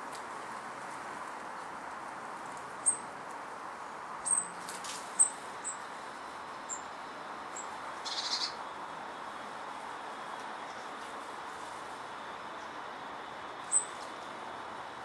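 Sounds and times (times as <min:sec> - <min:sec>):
small birds chirping: 0:04.2 - 0:05.9, 0:06.7 - 0:08.6, 0:13.6 - 0:14.0
rapid bird chatter: 0:07.6 - 0:08.6.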